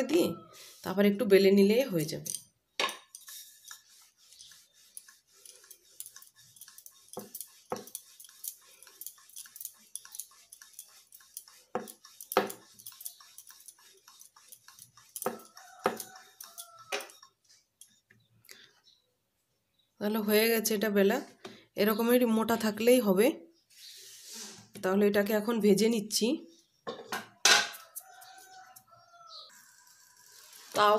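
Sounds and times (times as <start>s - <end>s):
rolling pin rolling dough on board: 2.9s - 17.3s.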